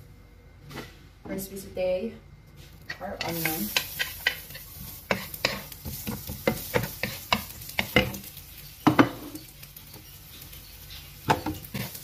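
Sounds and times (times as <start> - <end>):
spatula knocking and scraping pan: 2.9 - 9.4, 11.2 - 12.0
onions sizzling in oil: 3.2 - 12.0.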